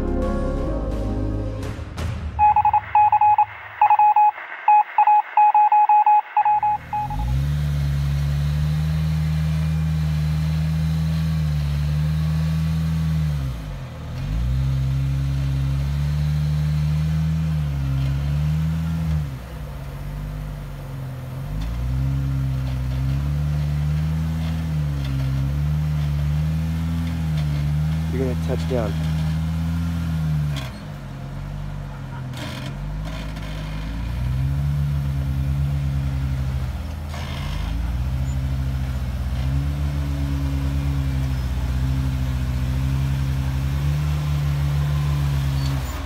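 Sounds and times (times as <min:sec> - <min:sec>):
car engine climbing: 0:00.0 - 0:46.0
electronic beeps: 0:02.4 - 0:07.4.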